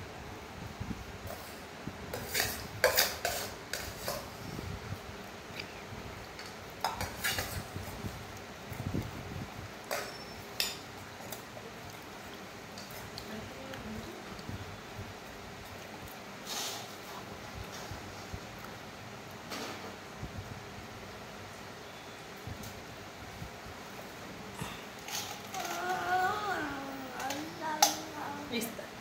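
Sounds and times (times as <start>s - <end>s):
metal bowl clinking and scraping: 2.1s - 4.3s, 9.9s - 10.8s.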